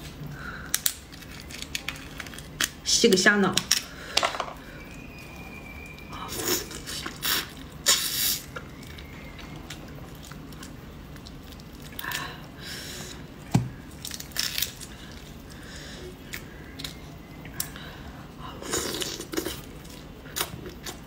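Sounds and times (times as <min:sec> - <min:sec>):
shrimp shells peeled by hand: 0:00.5 - 0:05.1, 0:13.5 - 0:15.4.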